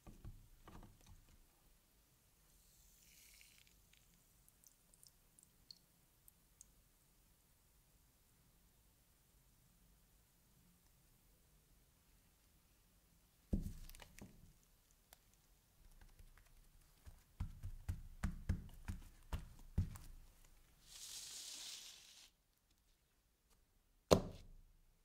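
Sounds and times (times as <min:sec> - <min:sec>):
hand patting paper towel on table: 0:13.6 - 0:14.0, 0:16.8 - 0:20.6, 0:24.1 - 0:24.6
sandpaper sliding across table: 0:20.8 - 0:22.3.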